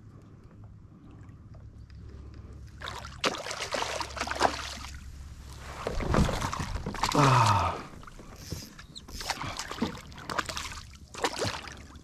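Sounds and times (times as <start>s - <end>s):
fish thrashing and splashing: 2.8s - 5.0s, 5.8s - 7.3s, 9.1s - 12.0s.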